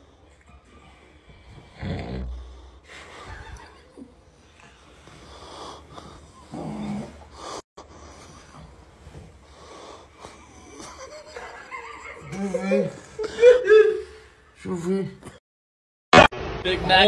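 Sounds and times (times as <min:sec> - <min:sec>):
quiet breathing: 0:00.0 - 0:03.6, 0:04.3 - 0:10.9
person snoring: 0:01.5 - 0:02.9, 0:05.3 - 0:07.7.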